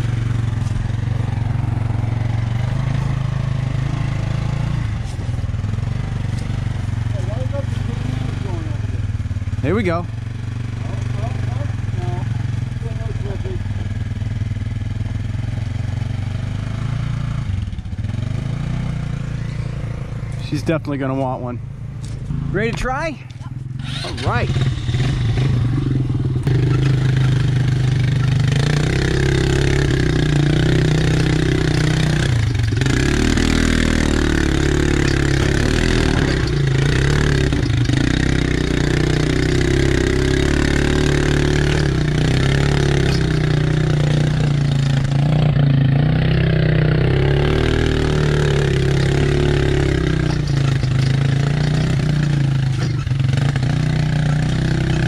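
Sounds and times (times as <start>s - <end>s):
off-road vehicle engine running: 0.0s - 55.0s.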